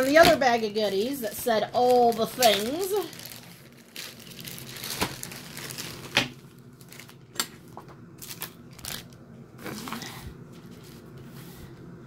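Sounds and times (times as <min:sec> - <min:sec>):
packaging bag crinkling: 0:01.0 - 0:07.3, 0:08.2 - 0:11.1.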